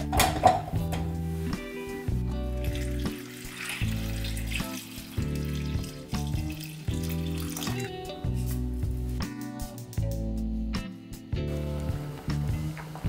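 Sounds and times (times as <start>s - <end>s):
background guitar music: 0.0s - 13.0s
water pouring into a saucepan: 2.5s - 8.2s.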